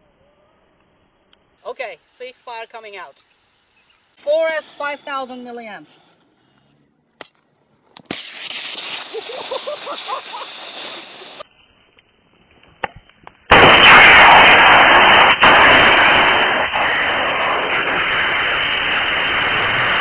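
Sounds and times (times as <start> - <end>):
battery venting burst: 8.0 - 11.4, 13.5 - 20.0
loud rushing hiss of gas: 8.1 - 11.4.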